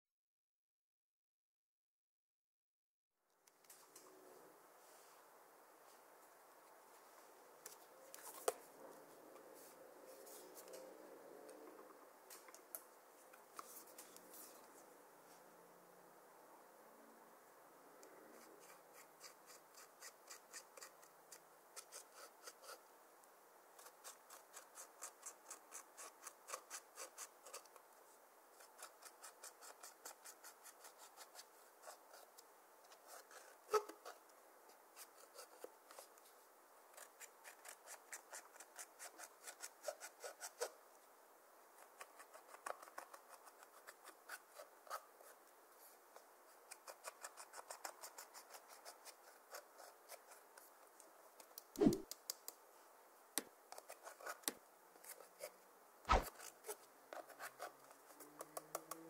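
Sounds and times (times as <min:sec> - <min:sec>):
metal tool scratching eyeshadow: 0:18.6 - 0:21.1, 0:23.8 - 0:27.7, 0:28.6 - 0:32.2.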